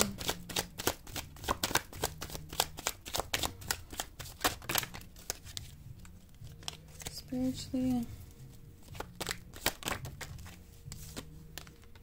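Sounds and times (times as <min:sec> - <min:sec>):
cards being shuffled by hand: 0:00.0 - 0:12.0.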